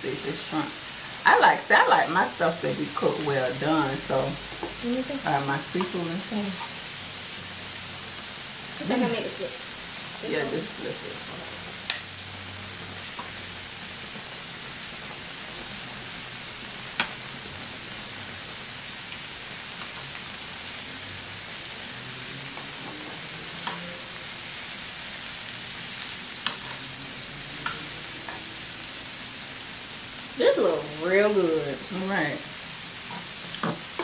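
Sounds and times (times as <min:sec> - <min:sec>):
seafood sizzling on a griddle: 0:00.0 - 0:34.0
metal tongs clicking on a pan: 0:11.8 - 0:12.1.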